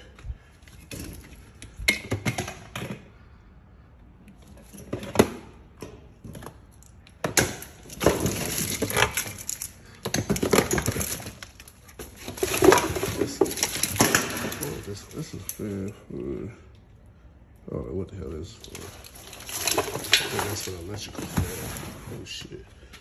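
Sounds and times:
objects handled around vehicle seat: 18.6s - 23.0s.

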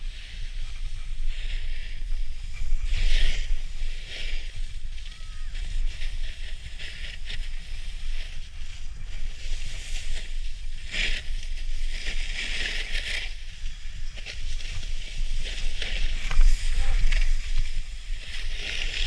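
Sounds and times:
snowboard scraping over snow: 0.0s - 19.0s.

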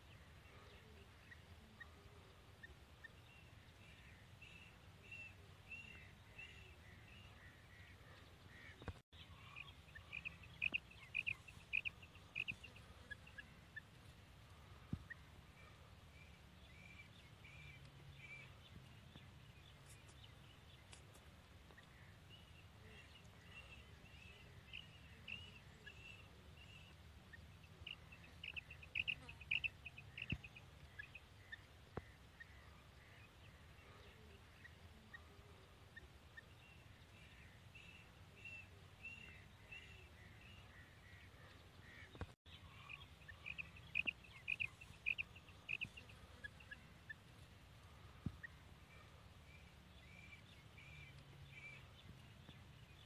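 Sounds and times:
quail calling: 8.6s - 13.9s, 27.9s - 31.1s, 42.8s - 47.2s.

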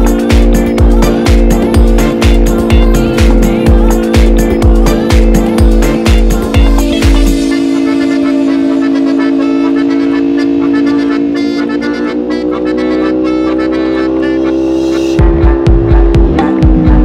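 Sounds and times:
quick ticking beat: 0.0s - 8.1s
held chord rising in pitch: 0.0s - 17.0s.

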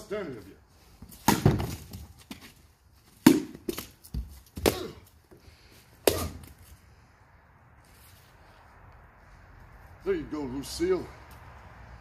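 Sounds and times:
bat hitting hollow gourds: 1.0s - 6.8s
pumpkin chunks thudding: 1.2s - 2.5s.

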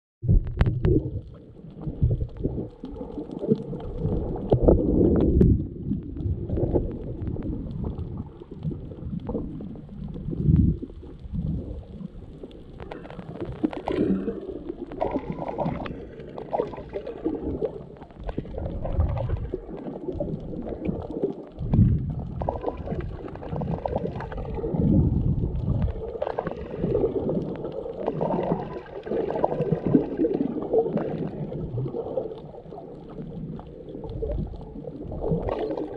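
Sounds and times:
underwater moving water rumble: 0.2s - 35.9s
faint clicks: 0.4s - 28.6s.

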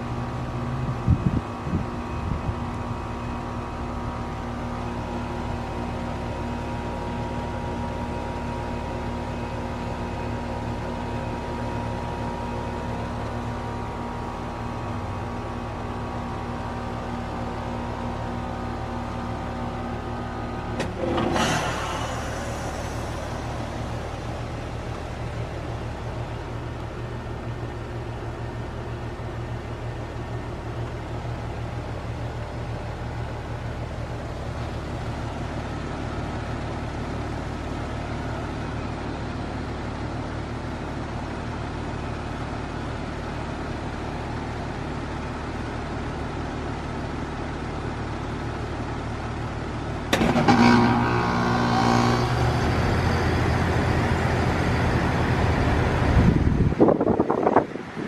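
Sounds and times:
heat pump low hum: 0.0s - 58.0s
loud whoosh of refrigerant: 0.6s - 4.2s, 11.6s - 26.6s, 50.1s - 58.0s.

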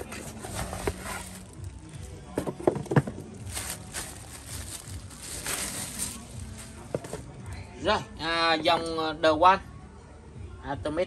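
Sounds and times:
plastic bag rustling: 0.0s - 7.4s.

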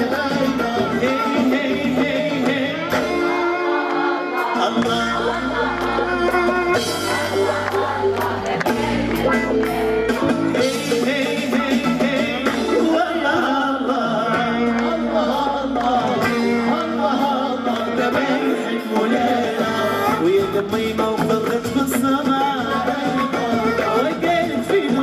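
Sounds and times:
man singing into microphone: 0.0s - 6.7s, 10.5s - 25.0s
violin: 0.0s - 10.4s
hand drums: 0.0s - 13.5s, 18.9s - 25.0s
keyboard: 0.0s - 25.0s.

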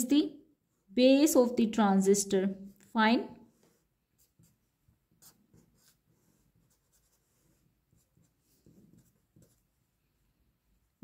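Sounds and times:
marker pen scratching on paper: 3.5s - 10.0s.

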